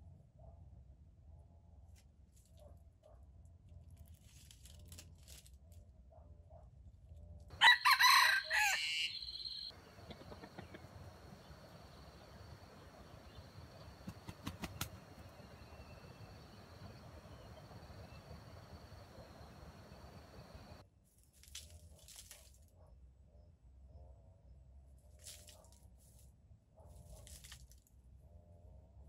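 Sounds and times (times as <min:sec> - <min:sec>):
rooster crowing: 0:07.5 - 0:20.8.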